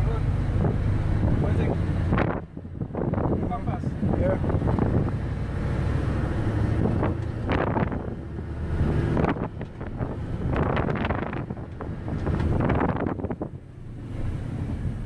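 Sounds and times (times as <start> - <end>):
diesel truck engine running: 0.0 - 15.0
wind noise on microphone: 0.5 - 13.7.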